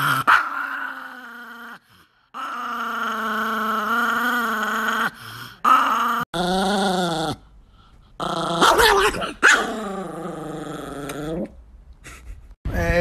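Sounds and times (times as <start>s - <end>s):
small dog growling: 8.2s - 11.6s.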